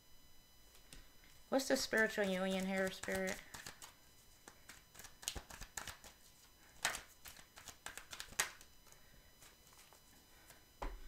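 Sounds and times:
cards slapping on cloth table: 0:02.7 - 0:06.2, 0:06.8 - 0:08.7.

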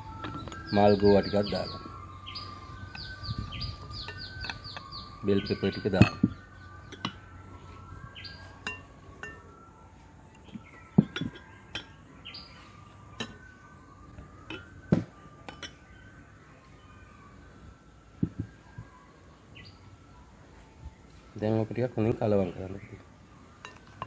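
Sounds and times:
faint birds chirping: 0:00.0 - 0:24.0
clinks on a glass bowl: 0:08.6 - 0:09.4, 0:11.0 - 0:12.0, 0:15.5 - 0:15.8, 0:23.6 - 0:24.0.

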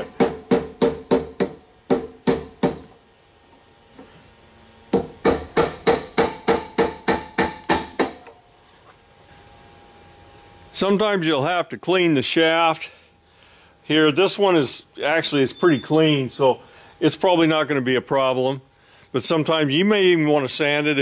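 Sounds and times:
hammer striking wooden dowel: 0:00.0 - 0:02.9, 0:04.9 - 0:08.3
faint ringing tone: 0:15.3 - 0:16.5.

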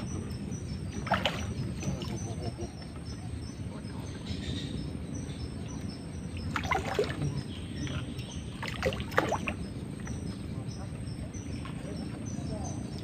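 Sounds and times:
low background rumble: 0:00.0 - 0:13.0
fish splashing in water: 0:00.9 - 0:02.3, 0:06.4 - 0:09.6.

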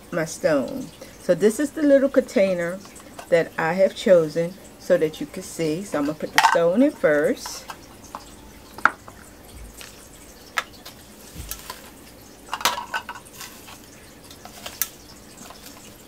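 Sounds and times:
plastic scoop scraping in steel bowl: 0:12.8 - 0:16.0.

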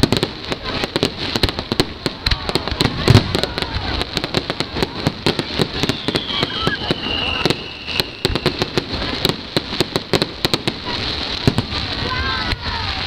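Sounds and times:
heavy firework boom: 0:00.0 - 0:12.6
fireworks bangs and crackling: 0:00.0 - 0:13.0.

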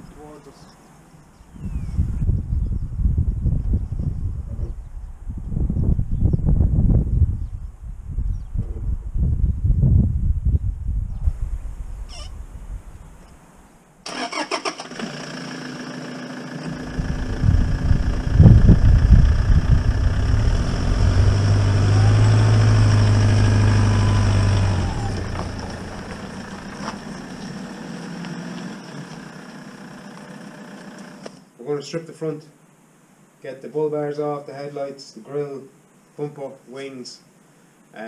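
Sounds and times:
pickup engine starting and running: 0:14.1 - 0:31.4
engine whine rising and falling: 0:14.6 - 0:31.4.

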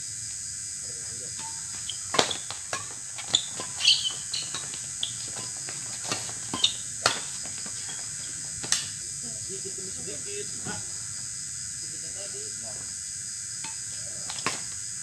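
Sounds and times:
night insects chirring: 0:00.0 - 0:15.0
rackets striking shuttlecock: 0:01.3 - 0:09.0
court shoes squeaking: 0:01.4 - 0:09.0.

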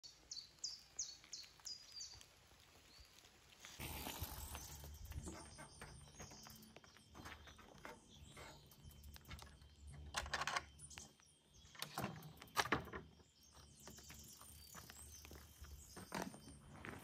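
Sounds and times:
hand tool scraping soil: 0:03.6 - 0:06.5.

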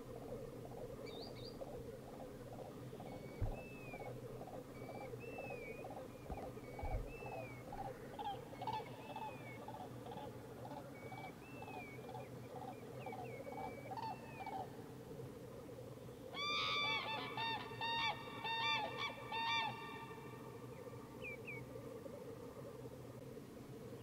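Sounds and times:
cranes trumpeting call: 0:16.4 - 0:20.4.

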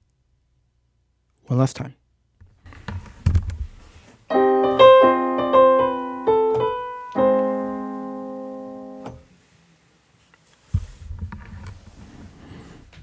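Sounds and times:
digital piano chords: 0:04.3 - 0:09.2.

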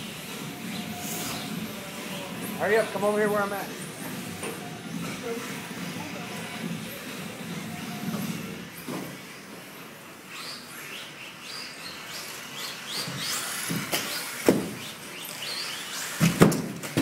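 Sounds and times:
toy car electric motors whining: 0:00.0 - 0:17.0
toy cars landing knocks: 0:13.0 - 0:14.9, 0:16.1 - 0:17.0.

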